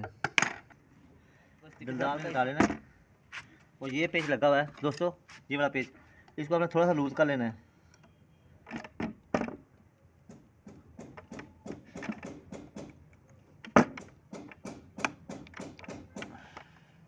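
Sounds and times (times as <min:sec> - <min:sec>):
spanner clicking and scraping on screw: 0:13.6 - 0:16.7.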